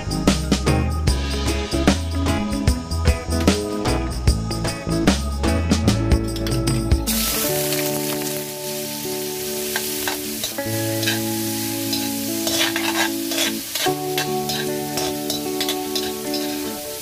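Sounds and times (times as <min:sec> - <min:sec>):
soft background music: 0:00.0 - 0:17.0
shrimp sizzling in hot oil: 0:07.0 - 0:17.0
spatula scraping a wok: 0:09.6 - 0:17.0.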